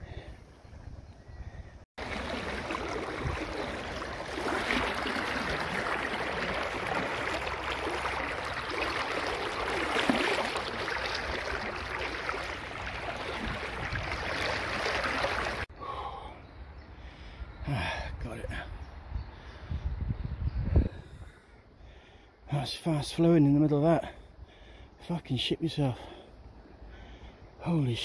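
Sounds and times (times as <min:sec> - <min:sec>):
river water rushing around wader: 0:02.0 - 0:15.7.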